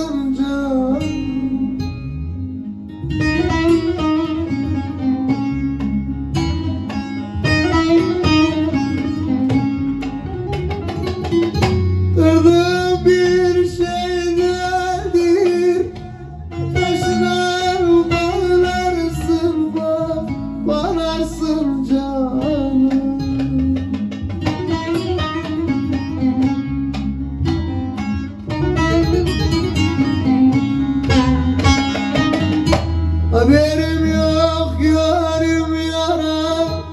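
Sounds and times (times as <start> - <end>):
man singing: 0.0 - 2.1, 12.2 - 24.2, 33.3 - 36.9
long-necked lute plucked: 0.0 - 36.9.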